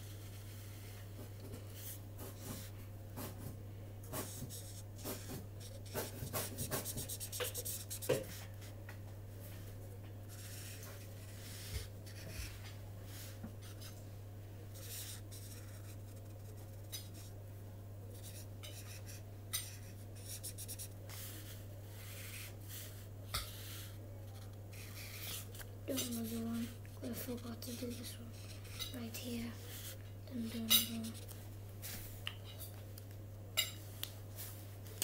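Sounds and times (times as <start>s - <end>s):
low electrical hum: 0.0s - 35.0s
marker scratching on paper: 4.1s - 8.5s, 10.3s - 13.9s, 14.8s - 17.3s, 18.2s - 31.4s.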